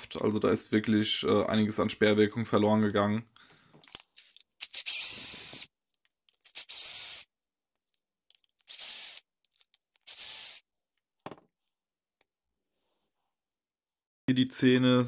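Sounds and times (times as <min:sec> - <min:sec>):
cordless drill motor whine: 0:06.6 - 0:07.3, 0:08.7 - 0:09.2, 0:10.1 - 0:10.6.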